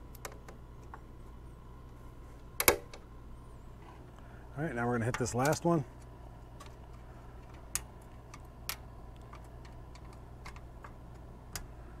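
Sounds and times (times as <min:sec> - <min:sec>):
small metallic clicks and ticks: 0:05.1 - 0:11.7.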